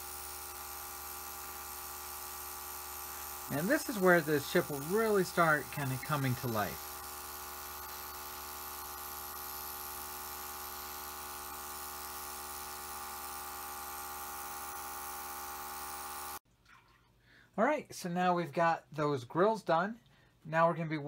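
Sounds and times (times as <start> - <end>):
air compressor humming: 0.0 - 16.4
airbrush hissing air: 0.0 - 16.4.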